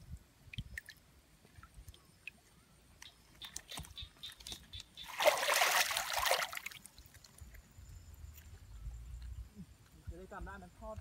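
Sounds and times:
fish splashing in shallow water: 0:00.4 - 0:07.6
small water drips: 0:00.4 - 0:07.7.

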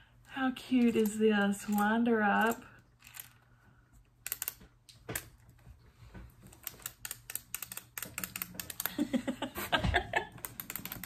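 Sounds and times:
wind-up toy clicking clatter: 0:00.8 - 0:03.4, 0:04.2 - 0:04.6, 0:06.6 - 0:09.2, 0:10.4 - 0:11.0.

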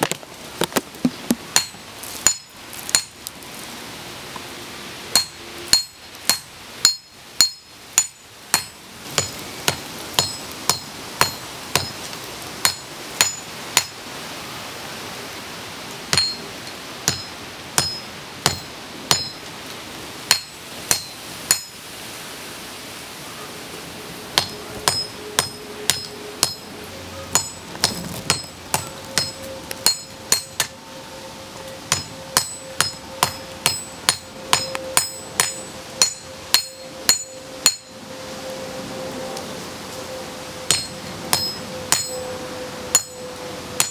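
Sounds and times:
hammer ringing on anvil: 0:05.2 - 0:12.0, 0:12.6 - 0:13.9, 0:16.1 - 0:16.4, 0:17.1 - 0:19.4, 0:20.3 - 0:21.8, 0:24.4 - 0:26.7, 0:27.3 - 0:30.8, 0:31.9 - 0:38.0, 0:40.7 - 0:42.3, 0:42.9 - 0:43.9.

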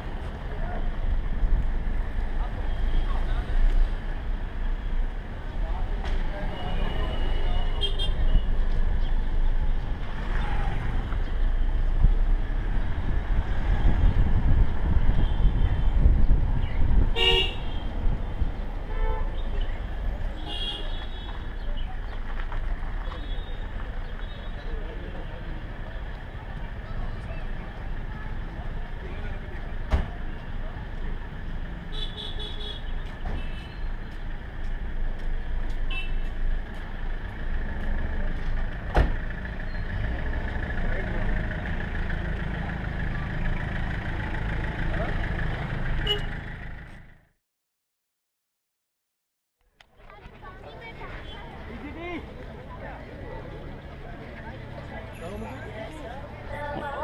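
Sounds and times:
road noise: 0:00.0 - 0:47.4, 0:49.6 - 0:57.0
vehicle rumbling along street: 0:00.0 - 0:47.4, 0:49.6 - 0:57.0
vehicle horn toots: 0:17.1 - 0:17.8, 0:46.0 - 0:46.4.

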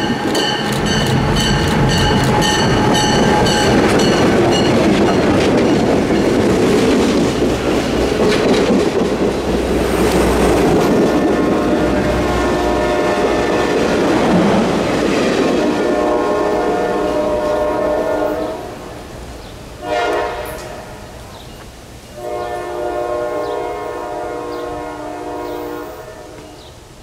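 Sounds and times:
train rumble: 0:00.0 - 0:26.9
locomotive air horn blasts: 0:11.3 - 0:13.9, 0:15.6 - 0:18.8, 0:19.8 - 0:21.0, 0:22.1 - 0:26.6.

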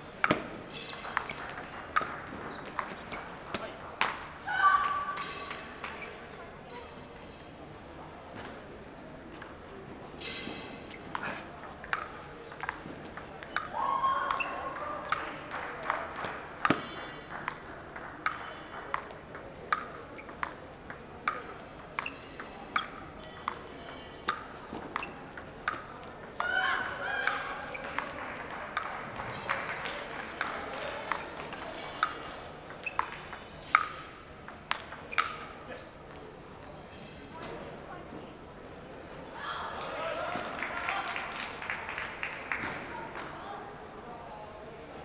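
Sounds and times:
table tennis ball clicks: 0:11.0 - 0:13.7, 0:16.6 - 0:28.9, 0:30.0 - 0:35.5.

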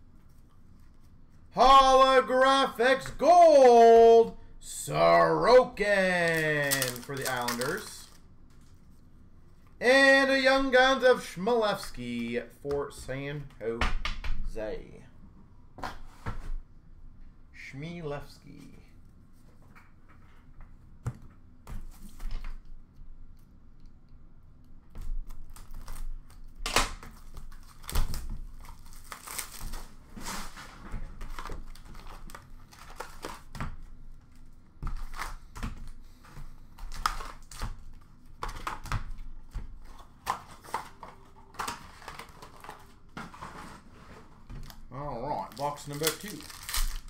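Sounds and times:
card packs rustling and tapping: 0:05.8 - 0:08.7, 0:30.6 - 0:47.0
plastic wrap crinkling and tearing: 0:06.1 - 0:08.3, 0:25.3 - 0:30.5, 0:31.1 - 0:33.6, 0:39.8 - 0:43.0, 0:44.6 - 0:47.0.

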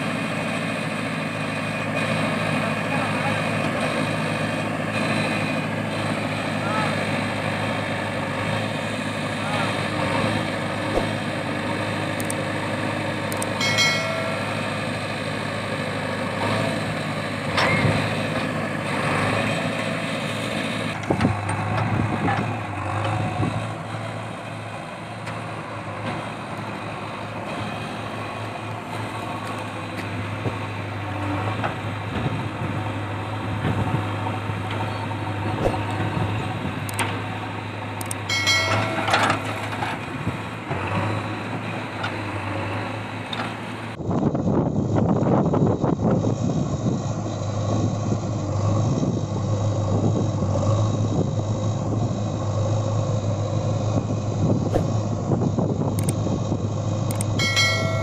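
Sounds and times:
diesel engines running: 0:00.0 - 0:58.0
backhoe knocks and clatter: 0:10.8 - 0:11.5, 0:17.5 - 0:18.6, 0:20.9 - 0:23.6, 0:33.6 - 0:37.3, 0:38.2 - 0:42.4.

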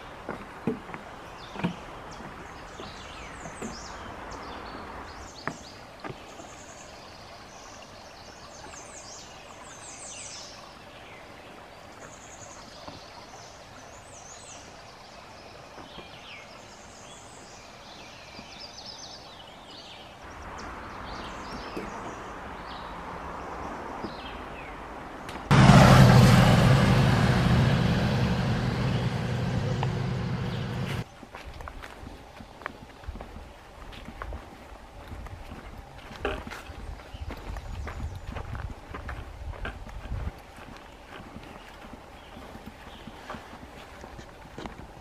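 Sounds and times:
footsteps on wooden boardwalk: 0:00.0 - 0:04.0, 0:05.4 - 0:06.4, 0:30.8 - 0:45.0
songbirds chirping: 0:00.0 - 0:25.5, 0:26.9 - 0:31.3, 0:35.8 - 0:38.8, 0:40.4 - 0:44.8
stream running over rocks: 0:00.0 - 0:25.6, 0:31.0 - 0:45.0.

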